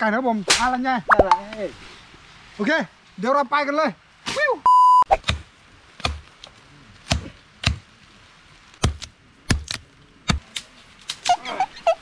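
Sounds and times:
machete chopping tree trunk: 0:05.1 - 0:06.3, 0:07.0 - 0:07.8, 0:08.8 - 0:10.6.

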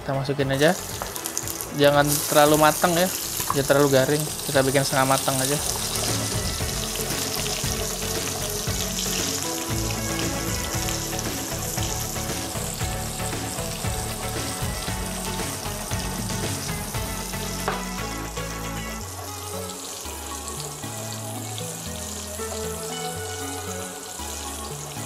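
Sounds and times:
background music: 0:00.0 - 0:25.0
chillies sizzling in hot oil: 0:00.6 - 0:25.0.

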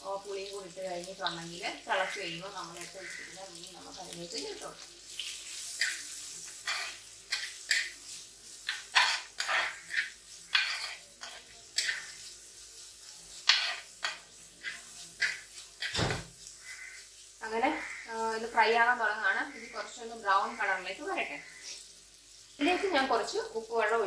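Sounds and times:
oil sizzling: 0:00.0 - 0:24.0
steel spoon scraping a pot: 0:05.2 - 0:08.0, 0:08.6 - 0:12.3, 0:13.4 - 0:17.0.

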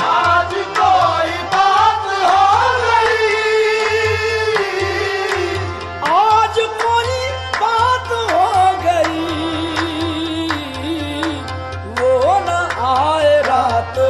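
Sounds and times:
tabla beat: 0:00.0 - 0:14.0.

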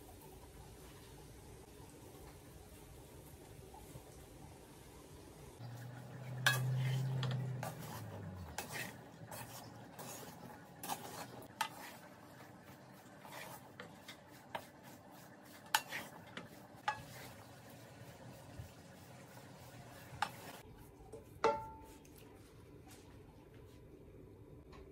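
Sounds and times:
wooden spoon scraping a pan: 0:06.3 - 0:22.1
spoon knocking against pan: 0:21.4 - 0:21.8.

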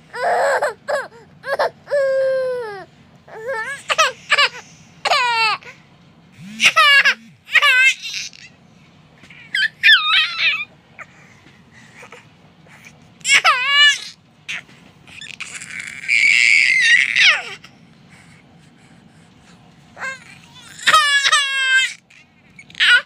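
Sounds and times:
baby laughing and squealing: 0:00.2 - 0:05.8, 0:06.4 - 0:08.6, 0:09.3 - 0:11.1, 0:13.2 - 0:17.7, 0:20.0 - 0:23.0.

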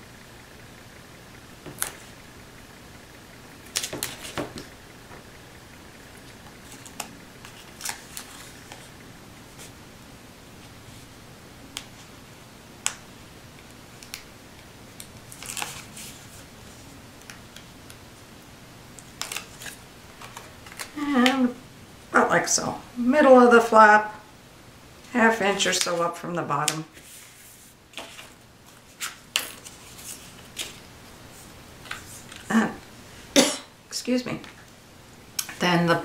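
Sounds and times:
faint steady hum: 0:00.0 - 0:36.0
paper rustling: 0:03.7 - 0:04.7, 0:06.6 - 0:08.9, 0:15.3 - 0:17.0, 0:26.9 - 0:32.5.

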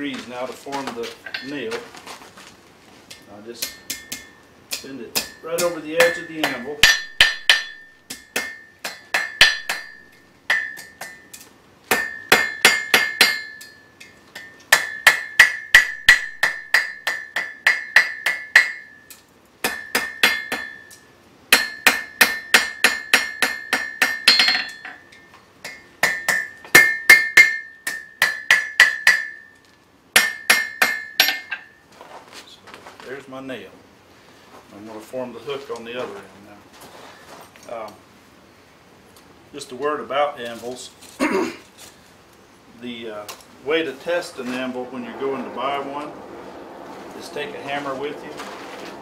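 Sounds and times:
hammer striking anvil: 0:03.6 - 0:19.0, 0:19.6 - 0:29.5, 0:30.2 - 0:31.7.

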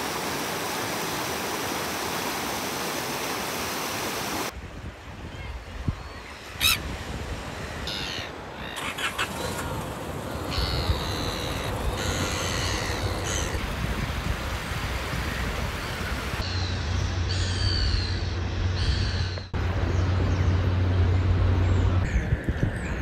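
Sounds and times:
gulls calling: 0:05.3 - 0:19.6.

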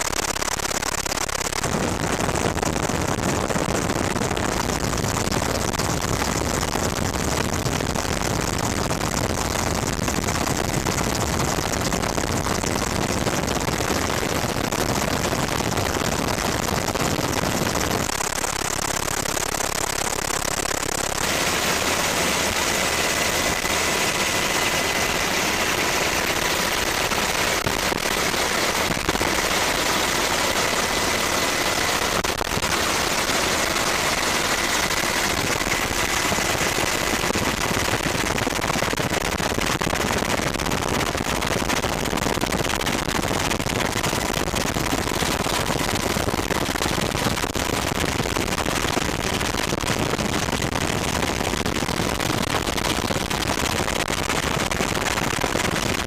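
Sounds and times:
helicopter engine and rotor: 0:18.0 - 0:39.0.

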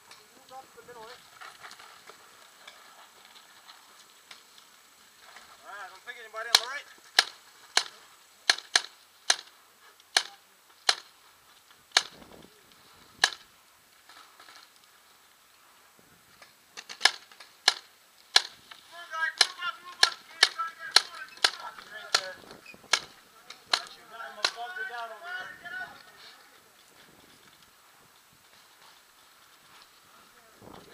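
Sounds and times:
paintball marker shots: 0:06.5 - 0:09.5, 0:10.1 - 0:11.1, 0:11.9 - 0:12.2, 0:13.2 - 0:13.4, 0:16.8 - 0:18.6, 0:19.4 - 0:24.6.

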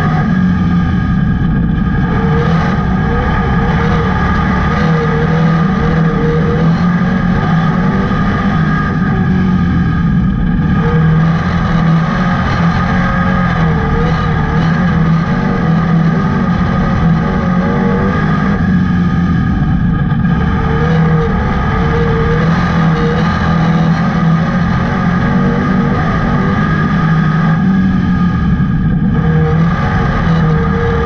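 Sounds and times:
car engine at high revs: 0:00.0 - 0:31.0.

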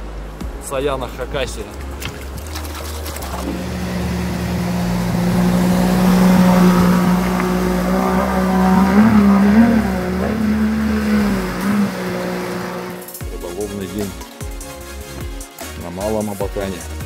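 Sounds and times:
engine running: 0:01.8 - 0:13.2.

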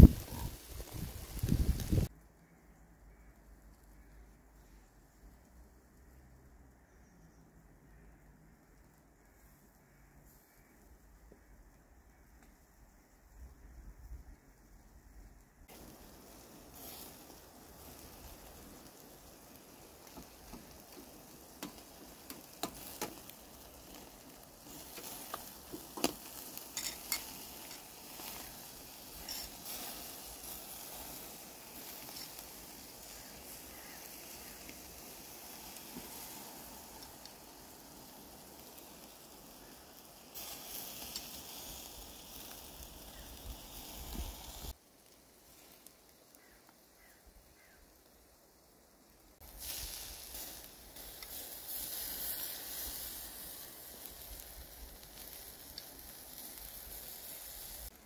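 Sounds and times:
fish sizzling on a grill: 0:00.0 - 0:02.2, 0:15.7 - 0:58.0
sharp pops: 0:20.1 - 0:23.4.

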